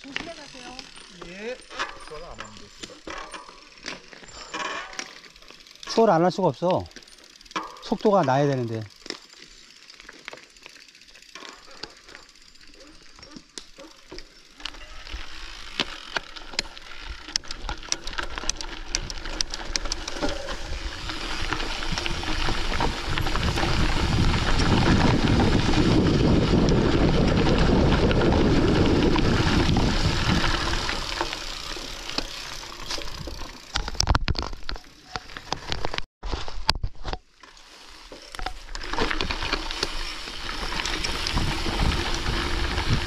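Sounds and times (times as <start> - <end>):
tyres crackling over loose stones: 0.0 - 43.0
wind rushing over microphone: 20.6 - 31.1, 41.2 - 43.0.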